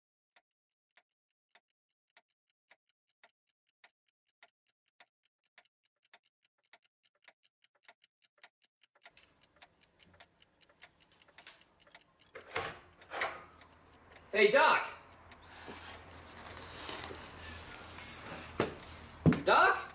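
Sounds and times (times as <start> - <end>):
clocks ticking: 0.9 - 19.9.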